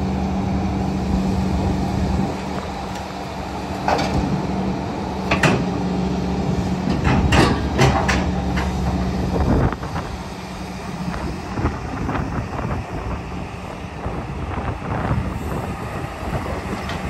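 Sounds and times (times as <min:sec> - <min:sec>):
excavator engine and hydraulics: 0:00.0 - 0:17.0.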